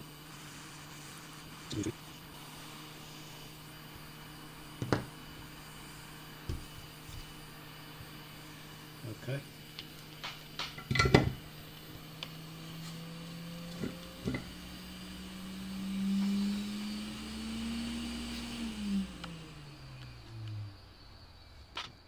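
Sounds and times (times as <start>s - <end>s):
hot air blower fan hum: 0.0s - 21.7s
light knocks on bench: 4.8s - 5.1s.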